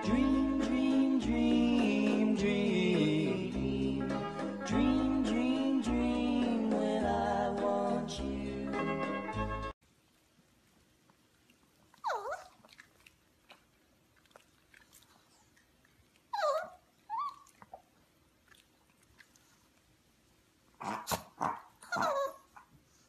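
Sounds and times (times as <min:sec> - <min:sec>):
puppy yipping and whining: 0:12.0 - 0:12.6, 0:16.3 - 0:17.8, 0:20.9 - 0:22.7.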